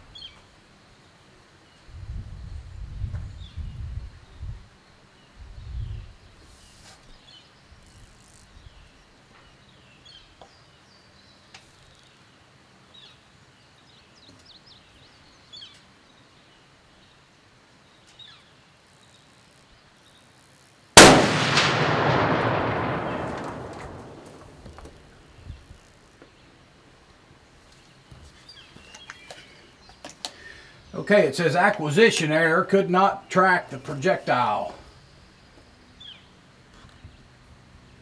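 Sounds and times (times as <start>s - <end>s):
birds chirping faintly: 0.0s - 38.0s
rifle shot with echo: 21.0s - 25.2s.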